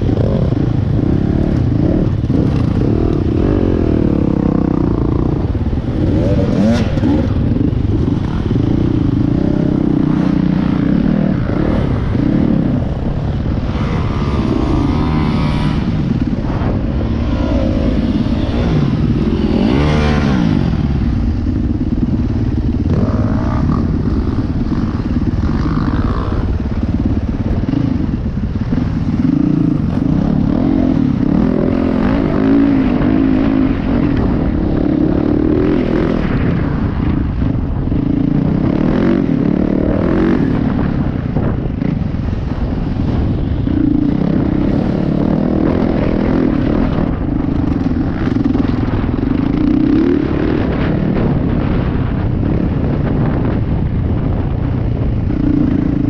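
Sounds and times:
dirt bike engine revving: 0.0s - 37.1s.

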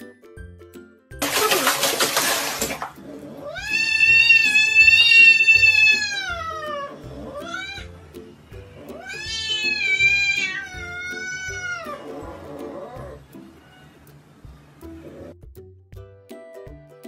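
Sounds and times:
cat meowing: 3.4s - 8.0s, 8.9s - 14.0s.

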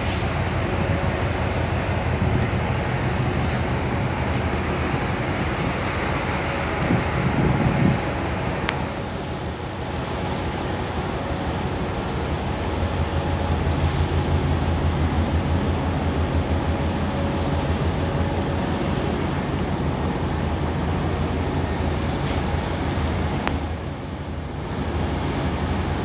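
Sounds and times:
water noise: 0.0s - 20.4s
marine diesel engines droning: 0.0s - 26.0s
wind: 0.0s - 26.0s.

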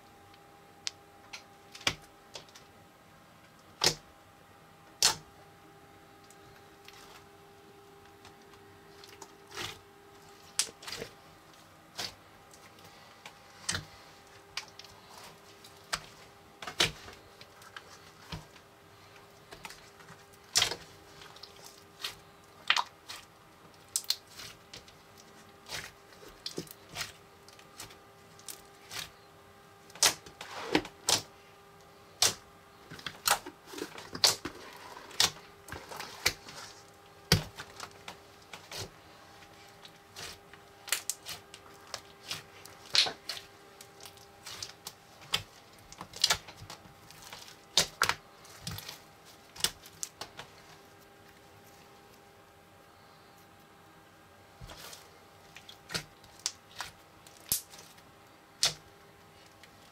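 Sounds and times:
slime popping and crackling: 39.9s - 50.4s, 54.6s - 58.0s.

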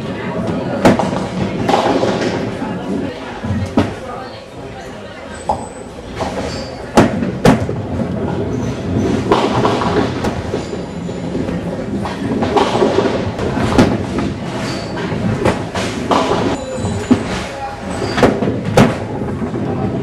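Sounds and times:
bowling balls rolling: 0.0s - 4.0s, 5.5s - 20.0s
balls striking pins: 8.8s - 17.5s, 18.1s - 20.0s.

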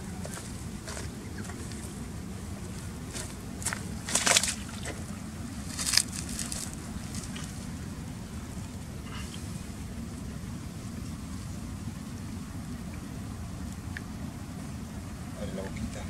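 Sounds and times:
steady low rumble: 0.0s - 16.0s
water sloshing and splashing: 0.2s - 10.1s.

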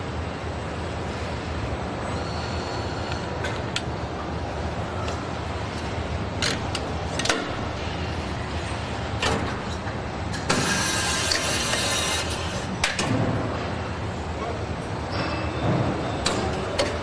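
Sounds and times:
factory machinery hum: 0.0s - 17.0s.

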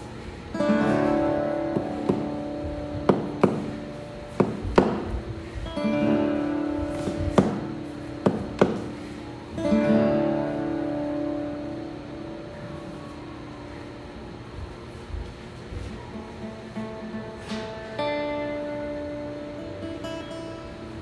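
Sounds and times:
acoustic guitar strummed chords: 0.0s - 14.4s, 16.1s - 21.0s
sharp knocks: 1.7s - 5.2s, 6.9s - 9.0s.

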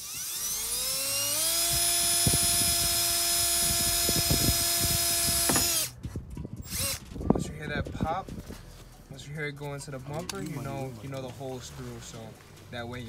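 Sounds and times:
cordless drill whining: 0.0s - 5.9s, 6.6s - 7.0s
dull knocks: 5.4s - 5.8s.

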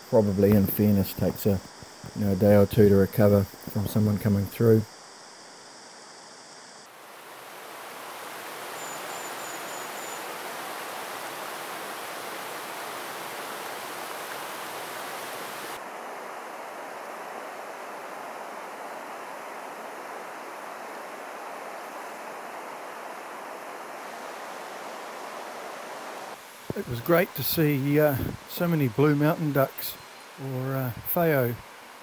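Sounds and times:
river rushing over rocks: 6.9s - 30.4s
faint high chirp: 8.7s - 10.3s.

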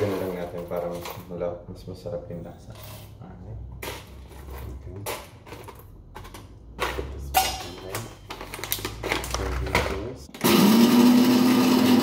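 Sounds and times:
foil bag crinkling: 8.2s - 10.0s.

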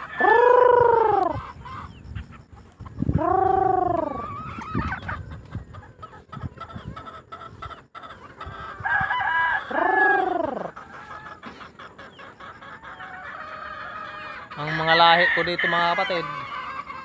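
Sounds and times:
chickens clucking: 0.0s - 17.0s
rooster crowing: 8.8s - 10.7s, 13.8s - 16.5s.

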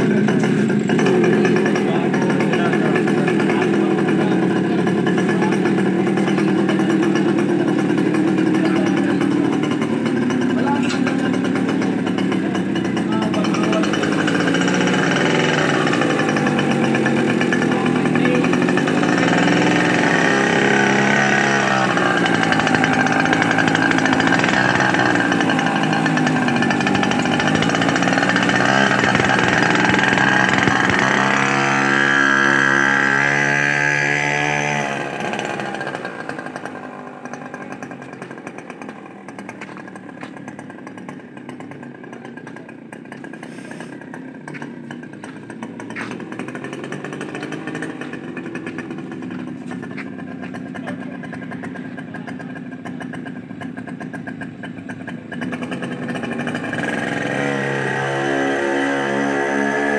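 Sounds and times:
small motorbike engine running: 0.0s - 59.9s.

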